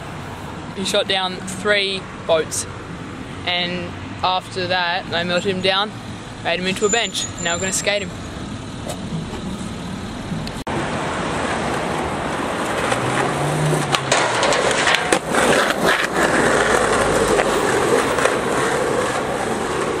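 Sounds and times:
skateboard wheels rolling on pavement: 0:08.5 - 0:20.0
skateboard clacking and grinding: 0:11.4 - 0:20.0.

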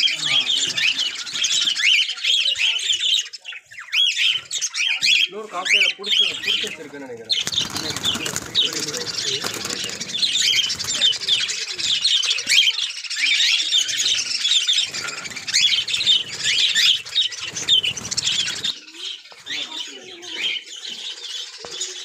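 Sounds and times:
birds chattering and chirping: 0:00.0 - 0:22.0
wings fluttering: 0:06.3 - 0:12.8, 0:13.7 - 0:19.6.

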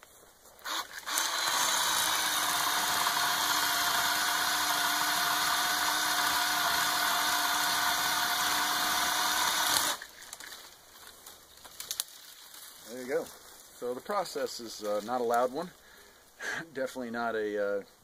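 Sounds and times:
electric chainsaw cutting wood: 0:00.6 - 0:10.1.

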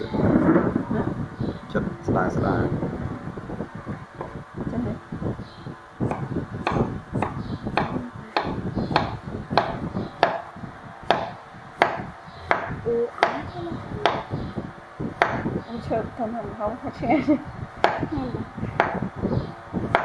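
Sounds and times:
knife chopping on wooden board: 0:06.1 - 0:10.4, 0:11.1 - 0:13.4, 0:15.2 - 0:15.5, 0:17.8 - 0:18.1.

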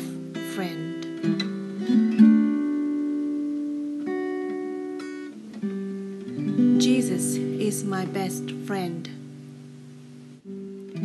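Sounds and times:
acoustic guitar chords: 0:00.0 - 0:11.0.

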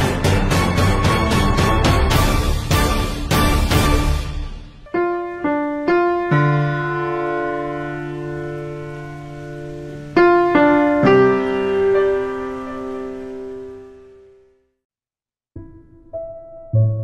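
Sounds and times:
slow piano chords: 0:04.7 - 0:14.7, 0:15.6 - 0:17.0.

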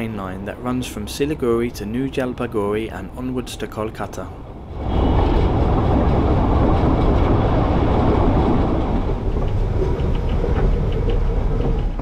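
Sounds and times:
train wheels rumbling on track: 0:00.0 - 0:12.0
rushing air: 0:04.4 - 0:12.0.

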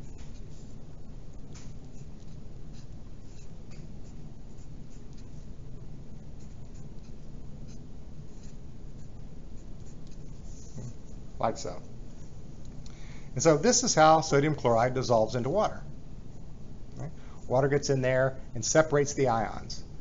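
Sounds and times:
pencil scratching on paper: 0:00.0 - 0:11.2
low background hum: 0:00.0 - 0:20.0.

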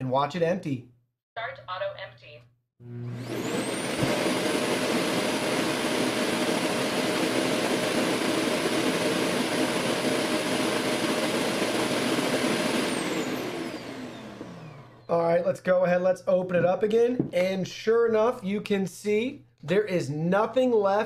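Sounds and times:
suction motor rushing and whining: 0:02.8 - 0:15.1.

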